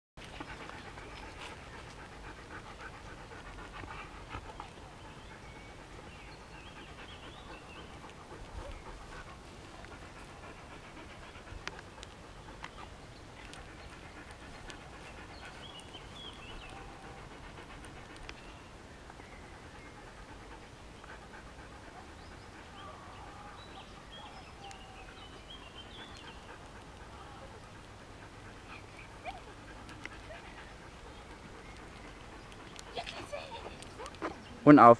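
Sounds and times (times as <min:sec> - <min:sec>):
dog panting rapidly: 0:00.2 - 0:34.9.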